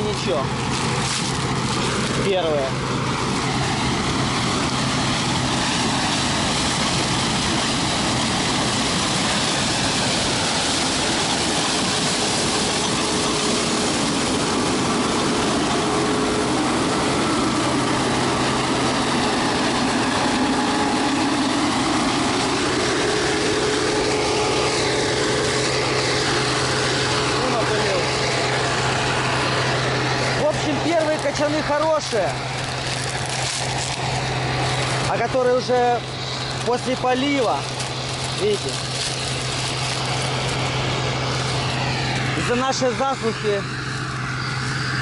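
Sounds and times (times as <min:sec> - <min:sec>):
combine harvester running: 0:00.0 - 0:45.0.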